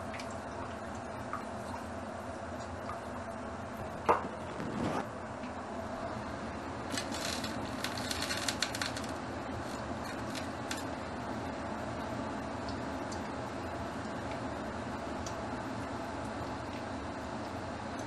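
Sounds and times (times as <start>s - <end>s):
crisp clicks and crackles: 6.8s - 11.0s.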